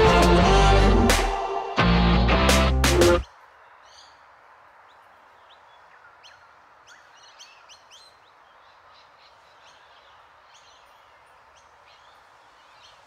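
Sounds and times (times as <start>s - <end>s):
steady outdoor hiss: 0.0s - 13.0s
faint bird chirps: 3.2s - 13.0s.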